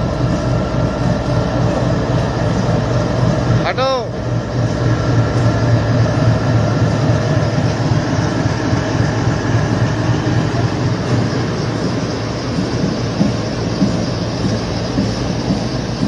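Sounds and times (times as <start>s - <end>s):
diesel locomotive running: 0.0s - 16.0s.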